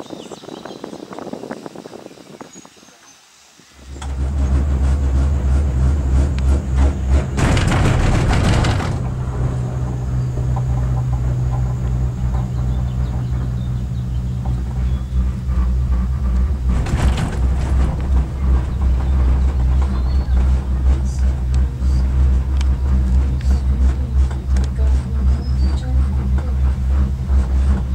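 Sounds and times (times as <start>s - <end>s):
cable car hum and rumble: 0.0s - 27.9s
rushing rattling bursts: 3.8s - 27.9s.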